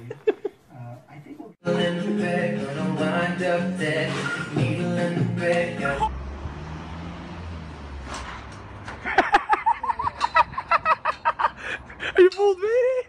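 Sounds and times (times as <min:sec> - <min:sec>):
person laughing: 0:00.0 - 0:00.7, 0:09.0 - 0:12.3
music with singing: 0:01.6 - 0:06.1
low street rumble: 0:02.5 - 0:13.0.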